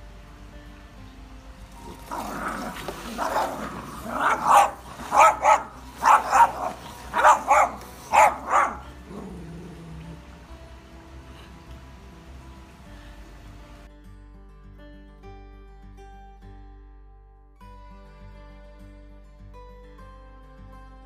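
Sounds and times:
small dog growling: 1.8s - 10.3s
small dog barking sharply: 4.0s - 8.9s.

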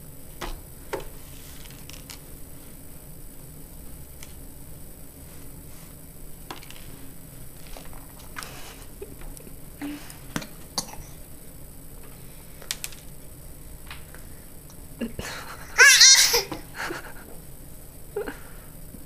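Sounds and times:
baby laughing: 15.6s - 16.6s.

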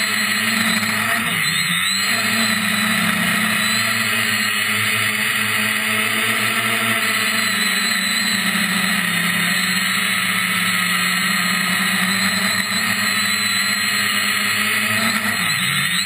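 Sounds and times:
quadcopter motors buzzing: 0.0s - 16.0s.

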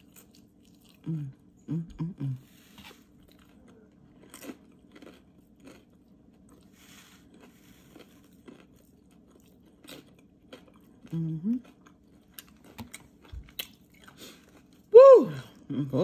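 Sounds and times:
chewing crispy food: 0.0s - 1.9s, 2.8s - 16.0s.

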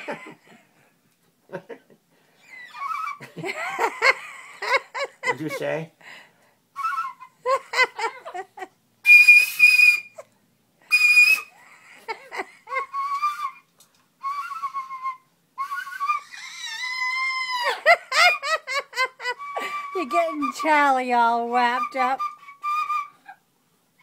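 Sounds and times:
plastic toy whistle: 9.1s - 10.2s, 10.9s - 11.5s, 14.2s - 17.0s, 21.9s - 23.2s.

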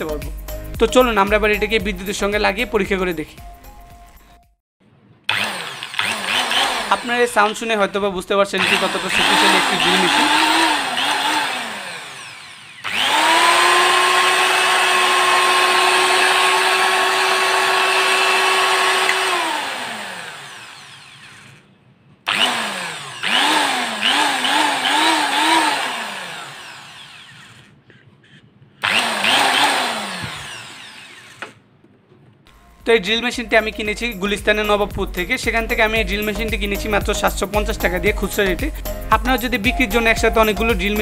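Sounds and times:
electric drill motor revving: 5.3s - 27.8s, 28.8s - 31.7s.

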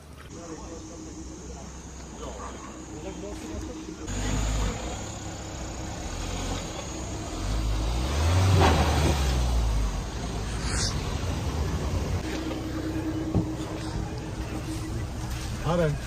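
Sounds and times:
car engine pulling uphill: 0.0s - 16.0s.

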